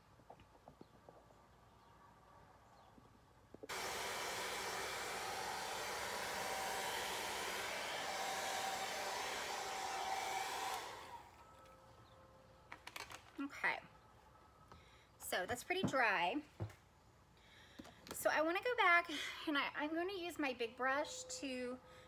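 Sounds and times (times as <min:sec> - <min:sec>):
hair dryer blowing: 0:03.7 - 0:11.4.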